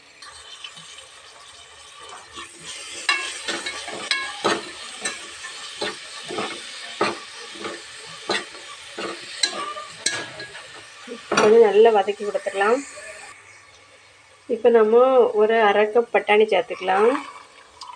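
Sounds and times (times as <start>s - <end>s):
paste sizzling in hot oil: 0.0s - 14.5s
spoon scraping metal pot: 2.3s - 13.2s, 16.7s - 17.5s.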